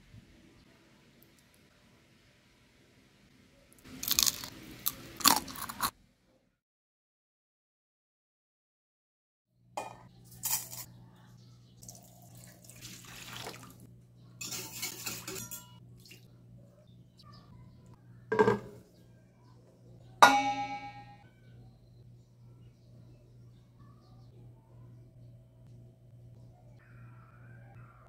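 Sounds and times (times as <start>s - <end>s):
water splashing in a metal bowl: 11.8s - 13.8s
knock: 18.3s - 18.8s
metal bowl struck and ringing: 20.2s - 21.2s.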